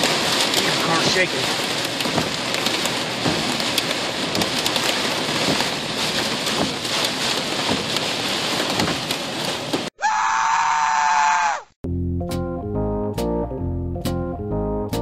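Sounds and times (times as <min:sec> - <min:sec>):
heavy rain on car roof: 0:00.0 - 0:10.0.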